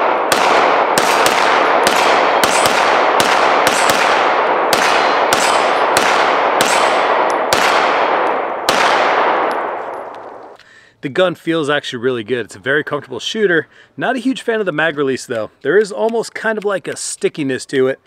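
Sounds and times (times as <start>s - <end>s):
pistol shots echoing: 0.0s - 10.6s.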